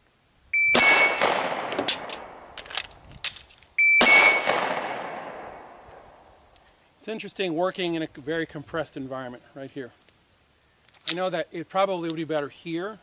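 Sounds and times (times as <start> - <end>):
gunshots with ringing decay: 0.7 - 2.6, 4.0 - 6.4
magazine reload clicks: 0.8 - 5.2, 10.9 - 11.2.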